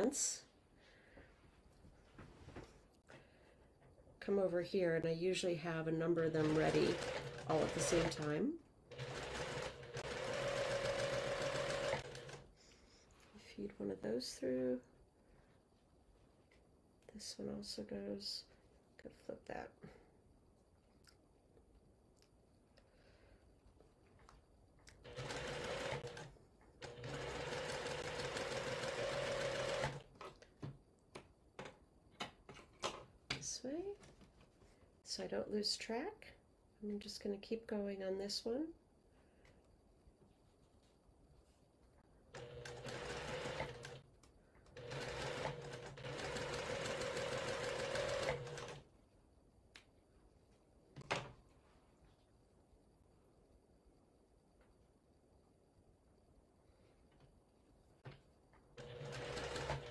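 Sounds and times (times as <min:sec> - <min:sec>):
sewing machine stitching: 0:06.1 - 0:12.5, 0:25.0 - 0:30.3, 0:42.3 - 0:44.0, 0:44.7 - 0:48.8, 0:58.8 - 0:59.9.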